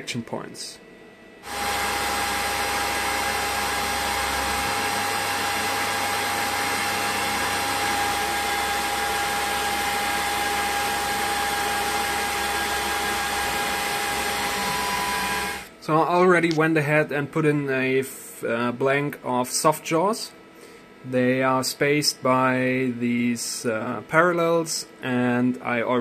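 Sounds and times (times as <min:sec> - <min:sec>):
milling machine cutting metal: 0:01.4 - 0:15.7.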